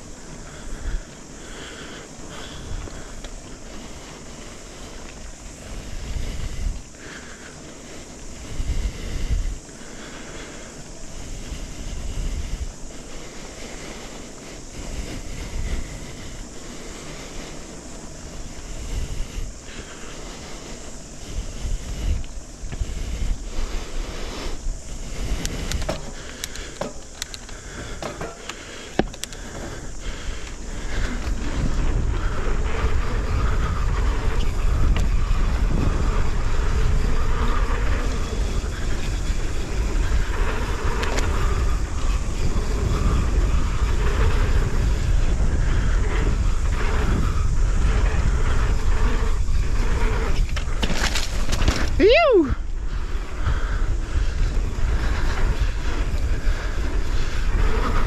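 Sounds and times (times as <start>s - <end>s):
bike tyres rolling on dirt: 0.0s - 58.0s
wind rushing over microphone: 0.0s - 58.0s
bike clicks and knocks: 25.3s - 32.2s, 40.4s - 42.2s, 50.3s - 52.0s.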